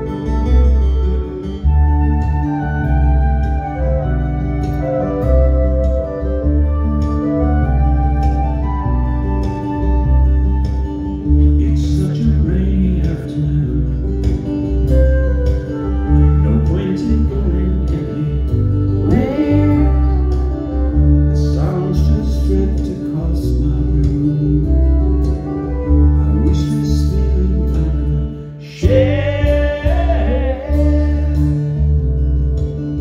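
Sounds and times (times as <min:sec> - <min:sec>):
flute: 0:00.0 - 0:33.0
heavy bass: 0:00.0 - 0:33.0
strummed acoustic guitars: 0:00.0 - 0:33.0
person singing: 0:11.4 - 0:32.1.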